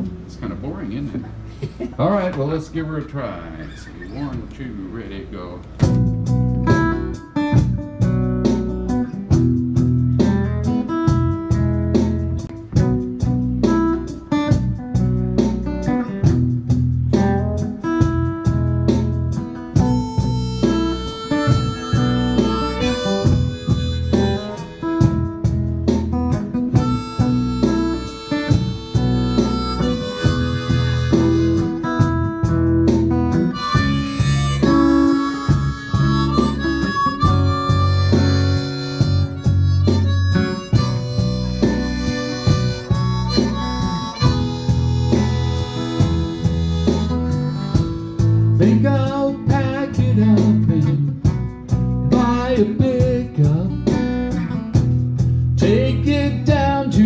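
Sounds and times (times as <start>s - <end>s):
acoustic guitar strumming: 0.0s - 57.0s
harmonica wailing notes: 19.7s - 49.3s.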